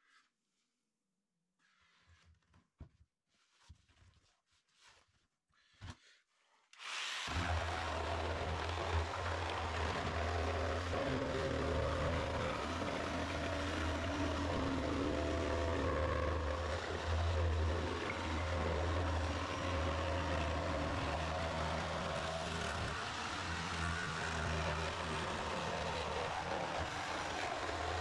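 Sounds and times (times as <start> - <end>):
machine humming: 7.3 - 28.0.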